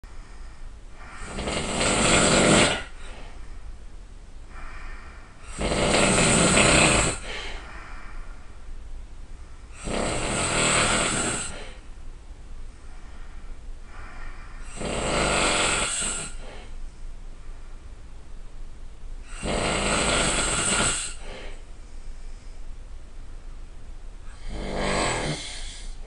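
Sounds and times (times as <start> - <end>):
quiet breathing: 0.0 - 26.0
person snoring loudly: 1.0 - 3.1, 5.4 - 7.5, 9.8 - 11.8, 14.6 - 16.6, 19.3 - 21.5, 24.4 - 26.0.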